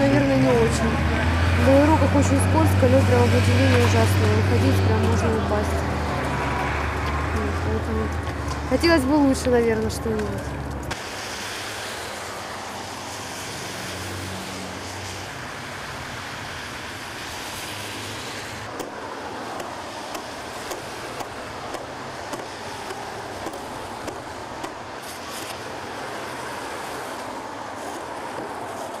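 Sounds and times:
traffic on wet road: 0:00.0 - 0:29.0.

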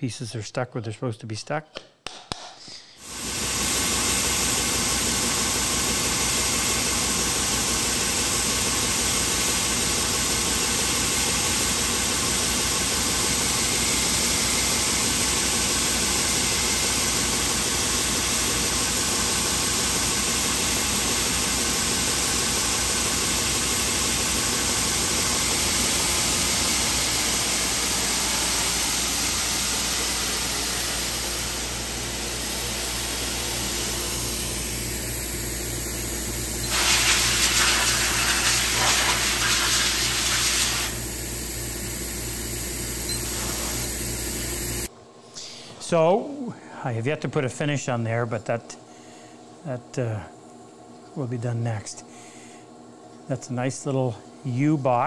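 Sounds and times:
woodworking power tool whirring: 0:03.0 - 0:44.9.

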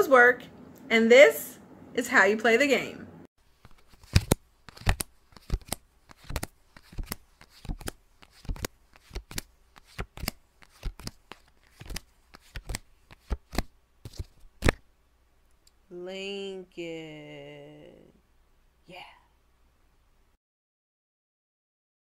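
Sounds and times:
playing cards snapping: 0:03.6 - 0:14.8.

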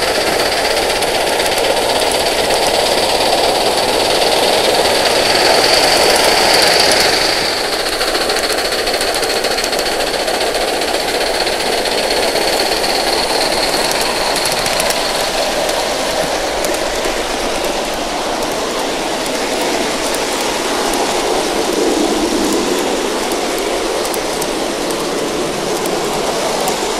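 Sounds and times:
model steam locomotive chuffing: 0:00.0 - 0:26.9
wheels clicking over rail joints: 0:00.0 - 0:26.9.

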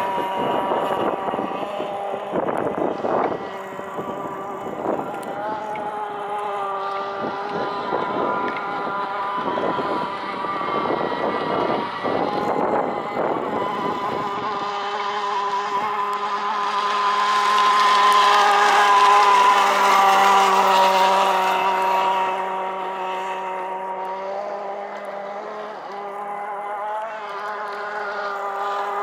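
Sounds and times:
model boat engine at high revs: 0:00.0 - 0:29.0.

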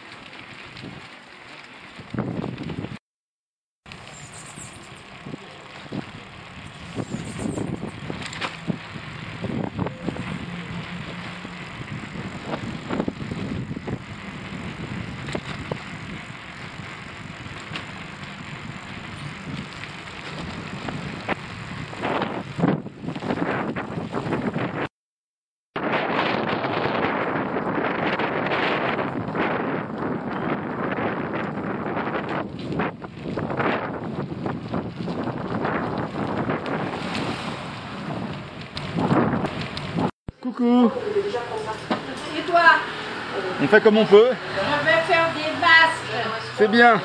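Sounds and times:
wind on microphone: 0:02.0 - 0:03.0, 0:04.4 - 0:17.6, 0:18.3 - 0:24.9, 0:25.8 - 0:40.2
motor scooter engine running: 0:04.0 - 0:23.1.

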